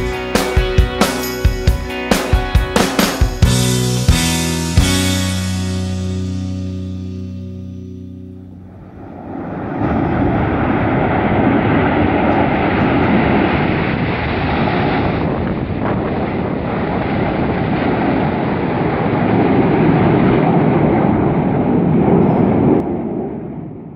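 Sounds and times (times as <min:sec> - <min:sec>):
jets flying past: 0:08.4 - 0:23.9.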